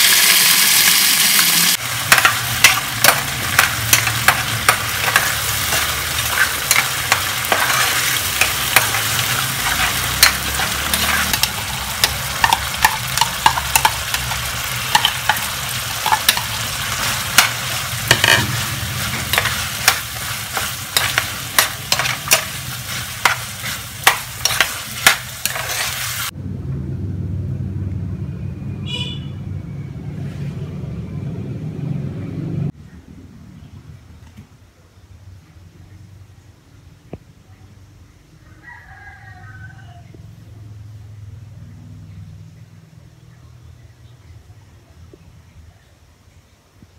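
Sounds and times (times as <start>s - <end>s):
food sizzling in a pan: 0.0s - 26.4s
spatula scraping a pan: 2.1s - 26.3s
low hum: 26.3s - 33.8s.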